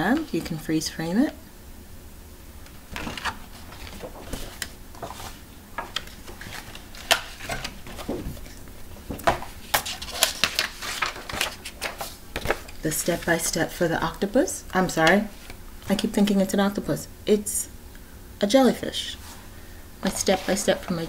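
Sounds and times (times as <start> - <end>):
drawing paper rustling: 2.9 - 13.6, 20.0 - 21.0.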